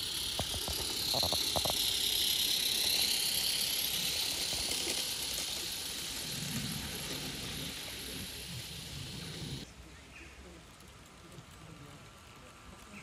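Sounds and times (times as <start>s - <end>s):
model steam locomotive hissing: 0.0s - 9.7s.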